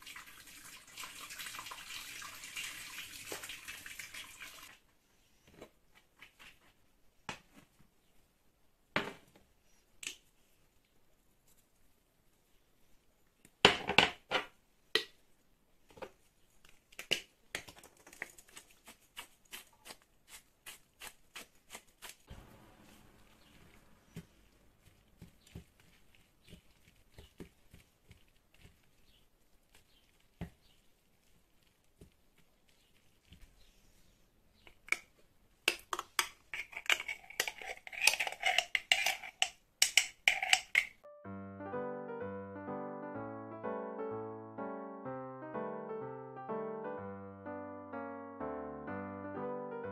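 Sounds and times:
spice shakers clattering: 35.9 - 41.0
metal spoon clinking in glass jar: 36.6 - 40.9.

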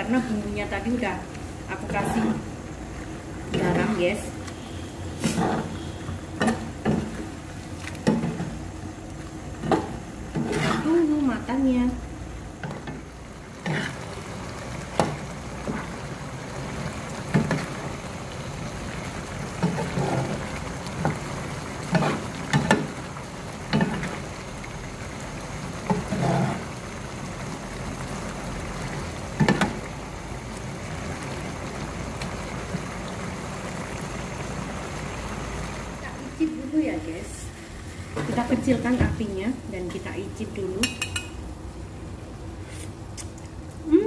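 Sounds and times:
sauce bubbling in a frying pan: 0.0 - 39.4
metal spatula scraping a pan: 5.2 - 7.0, 10.4 - 11.1, 19.6 - 20.4, 25.9 - 26.7.

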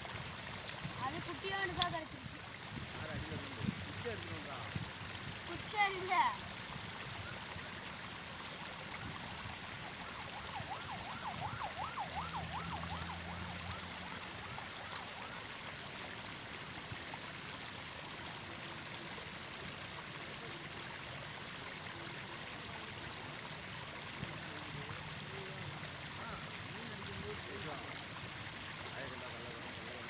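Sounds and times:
flowing river water: 0.0 - 30.0
distant warbling siren tone: 9.2 - 15.6.

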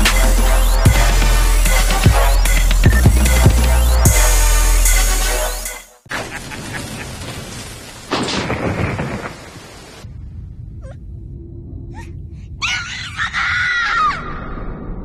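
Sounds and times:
soft low rumble: 10.0 - 12.6.

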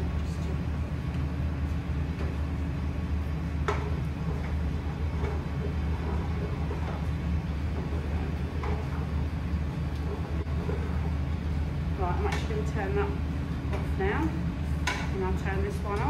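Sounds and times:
kitchen low rumble: 0.0 - 16.0.

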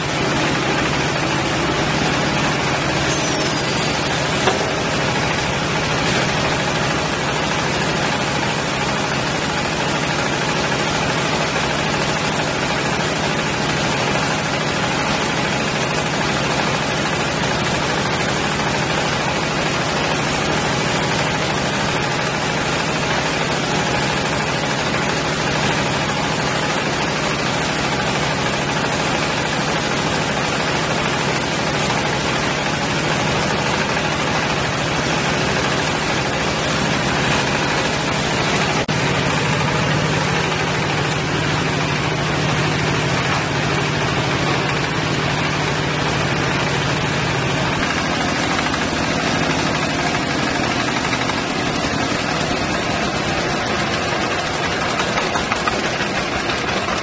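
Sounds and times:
diesel engine humming: 0.0 - 8.8, 35.9 - 57.0
baler machine clatter: 0.0 - 57.0.

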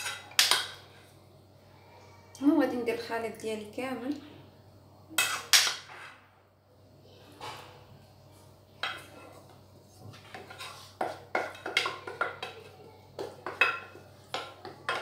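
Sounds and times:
metal utensil scraping saucepan: 10.1 - 15.0.

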